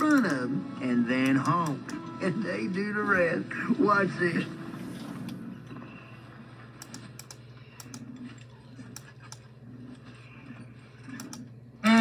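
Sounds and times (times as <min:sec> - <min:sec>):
low hum: 0:00.0 - 0:12.0
keyboard typing clicks: 0:06.8 - 0:09.5, 0:11.1 - 0:11.5.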